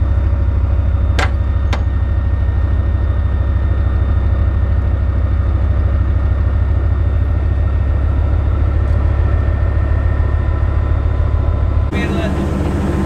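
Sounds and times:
diesel engine rumbling: 0.0 - 13.0.

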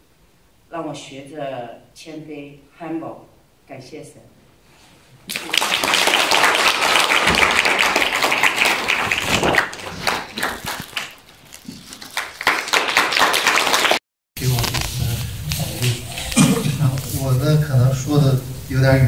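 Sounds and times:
audience applauding: 5.3 - 14.0.

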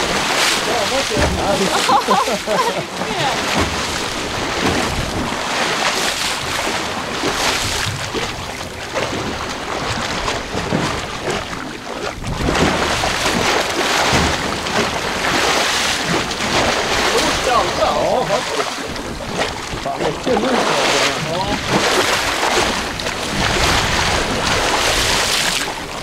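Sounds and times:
sea washing around boat: 0.0 - 26.0
wind buffeting microphone: 0.0 - 26.0.

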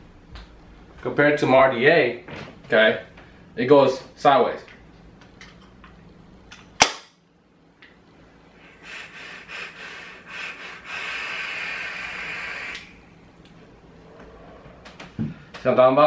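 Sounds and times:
air hissing through vape: 8.6 - 13.0.

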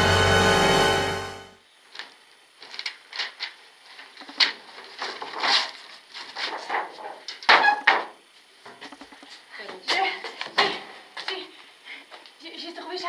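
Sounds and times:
paper rustling and flipping: 2.0 - 7.5.

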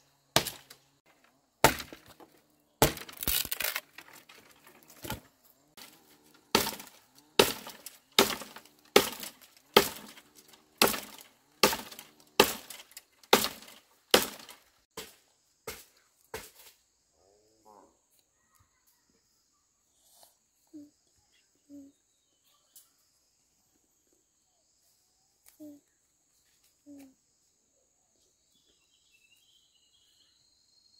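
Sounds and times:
machete chopping wood: 0.3 - 0.8, 1.6 - 16.7
faint high insect drone: 15.1 - 30.9.

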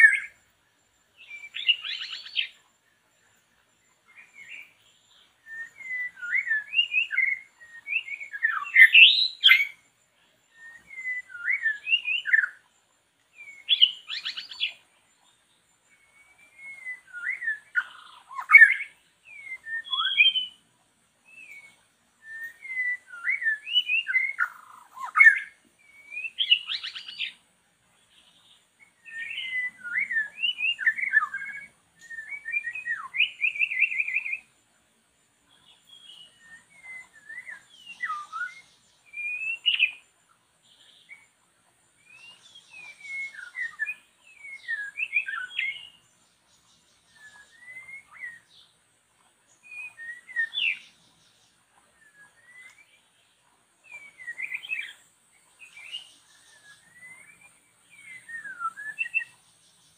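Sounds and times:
songbird singing: 0.0 - 59.9.

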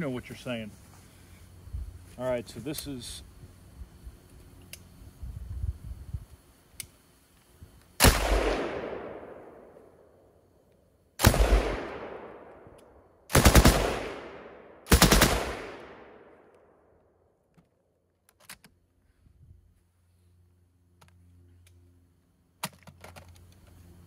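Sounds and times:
machine gun bursts with echo: 8.0 - 9.3, 11.2 - 12.3, 13.3 - 16.2.

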